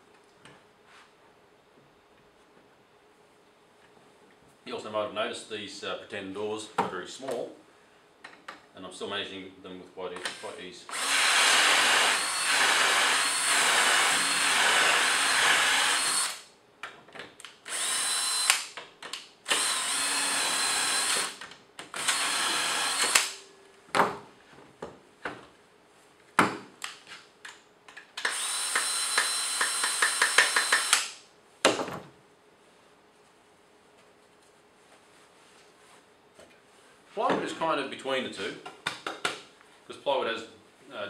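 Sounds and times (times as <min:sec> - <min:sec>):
cordless drill whining: 0:10.9 - 0:16.4, 0:17.7 - 0:18.7, 0:19.5 - 0:23.4, 0:28.2 - 0:31.1.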